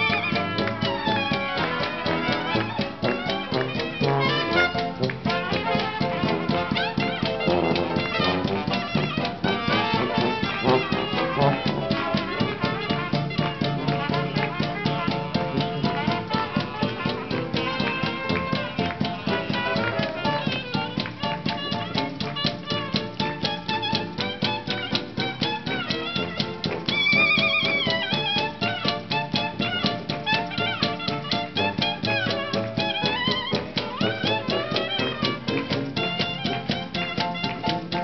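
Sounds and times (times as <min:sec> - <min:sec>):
jazz street band playing: 0:00.0 - 0:38.0.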